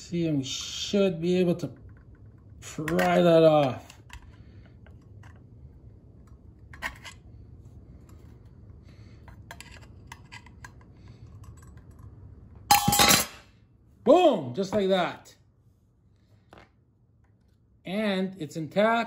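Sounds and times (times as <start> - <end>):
screwdriver clicks and scrapes: 6.2 - 7.2, 9.2 - 12.1
sharp metallic clink: 12.7 - 13.5.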